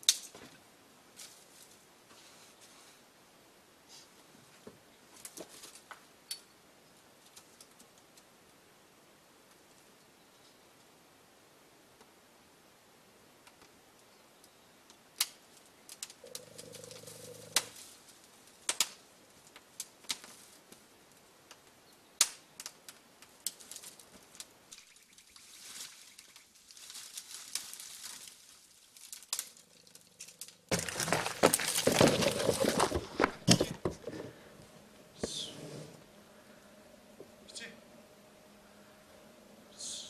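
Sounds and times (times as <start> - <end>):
twigs snapping and crackling: 0.0 - 0.5, 14.9 - 20.8, 21.5 - 33.7
fire catching with rushing crackle: 17.6 - 20.8, 26.3 - 32.0.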